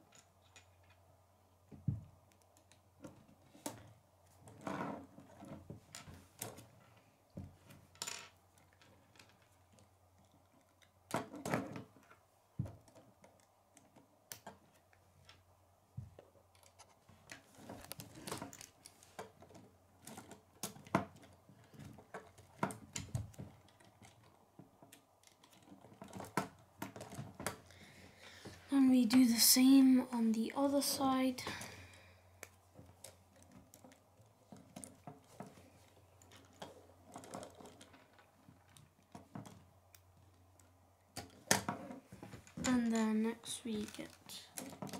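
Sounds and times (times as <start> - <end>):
plastic pieces clicking together: 16.5 - 27.6, 40.6 - 44.9.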